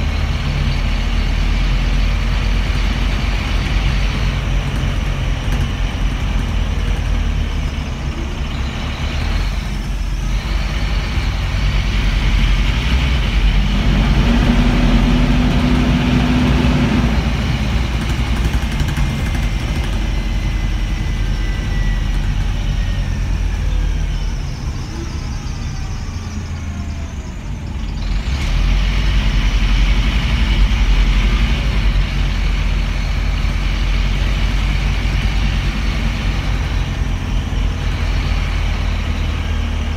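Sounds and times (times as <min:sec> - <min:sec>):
bus diesel engine rumbling: 0:00.0 - 0:39.9.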